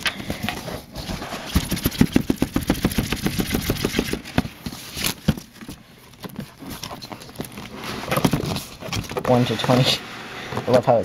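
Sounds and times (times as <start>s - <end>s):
cardboard box scraping and rustling: 0.3s - 2.2s, 3.6s - 11.0s
cardboard box knocks: 1.6s - 4.5s.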